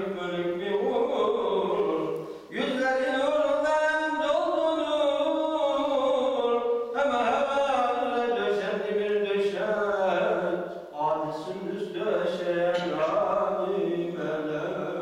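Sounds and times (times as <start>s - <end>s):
man chanting: 0.0s - 15.0s
man breathing: 2.2s - 2.5s.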